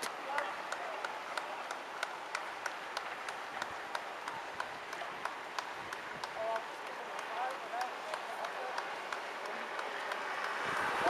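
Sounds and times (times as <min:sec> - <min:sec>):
spectators clapping: 0:00.0 - 0:10.6
steady outdoor hiss: 0:00.0 - 0:11.0.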